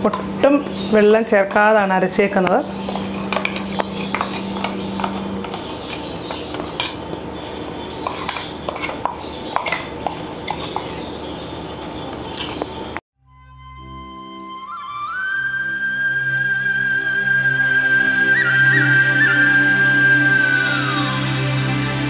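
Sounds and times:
spoon clicking and scraping cookware: 2.4s - 7.3s, 8.0s - 11.2s
music: 13.2s - 22.0s.

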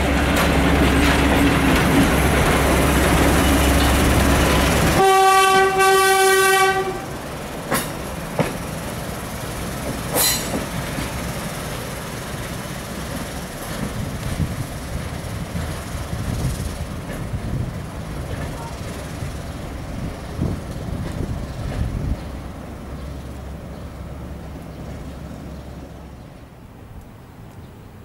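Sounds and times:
wheels clicking on track: 0.0s - 5.0s, 6.5s - 27.7s
railcar engine running: 0.0s - 28.0s
railcar horn blast: 4.9s - 7.2s.

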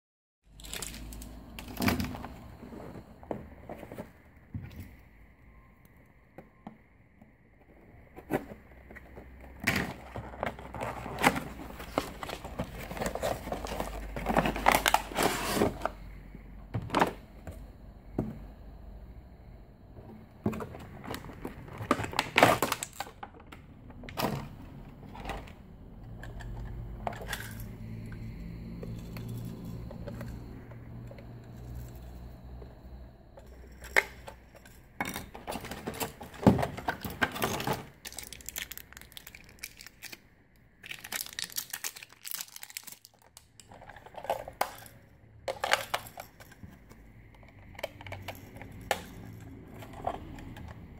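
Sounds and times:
plastic packaging crinkling: 0.5s - 1.7s, 10.2s - 15.8s, 35.7s - 44.8s
low steady hum: 0.5s - 50.9s.

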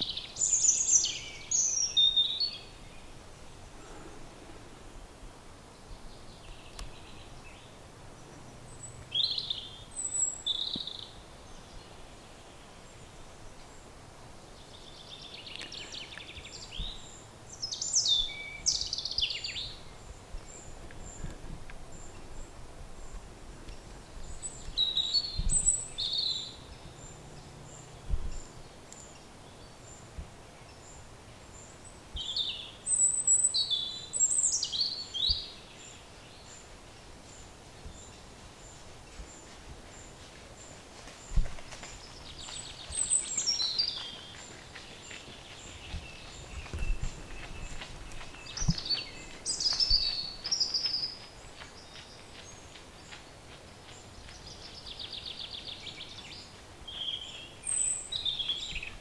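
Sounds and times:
birds chirping: 0.0s - 4.8s, 5.6s - 59.0s
faint background noise: 0.0s - 59.0s.

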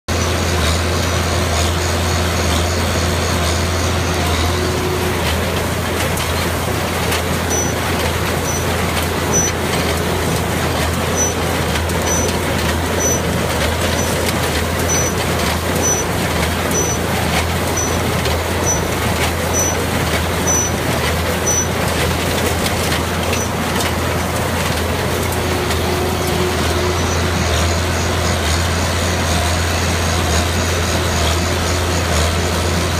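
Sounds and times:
tractor engine running: 0.1s - 32.9s
short high squeak: 7.5s - 9.7s, 11.1s - 21.8s, 23.3s - 23.6s.

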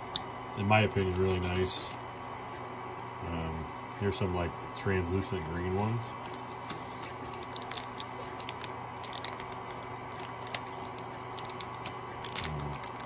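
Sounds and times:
steady hum: 0.0s - 13.0s
plastic bag crinkling: 0.9s - 2.0s, 5.6s - 13.0s.

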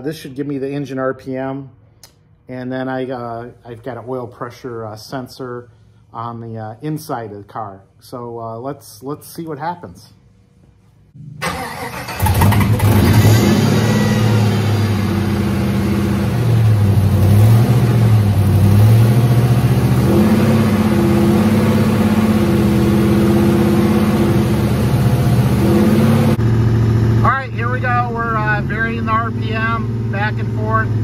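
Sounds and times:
engine cranking and starting: 11.4s - 14.8s
car engine idling: 11.4s - 31.0s.

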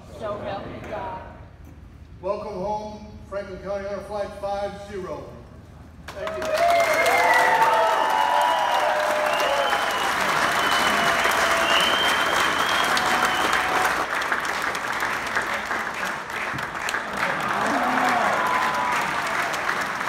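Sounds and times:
crowd applauding: 6.1s - 20.0s.

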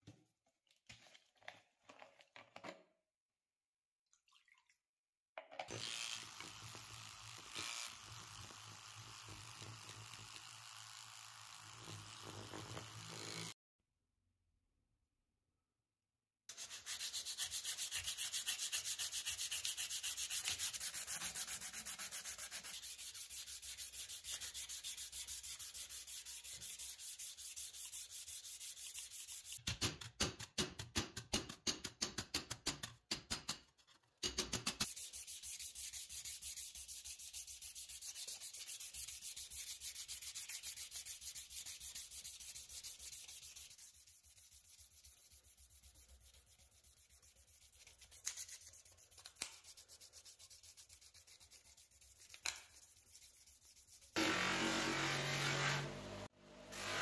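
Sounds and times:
hand sanding metal plate: 16.5s - 29.6s, 34.8s - 55.9s.

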